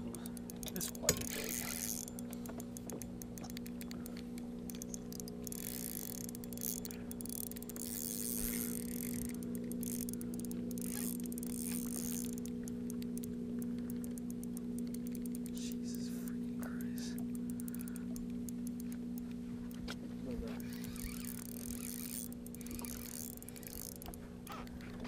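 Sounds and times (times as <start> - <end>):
electric motor humming: 0.0 - 25.0
faint clicks: 0.1 - 25.0.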